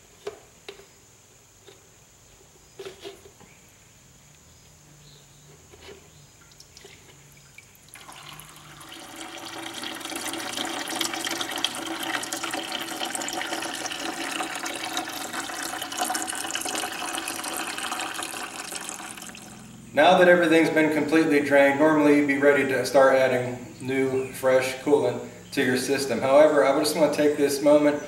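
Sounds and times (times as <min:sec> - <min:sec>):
liquid splashing into drain pan: 0:06.5 - 0:19.6.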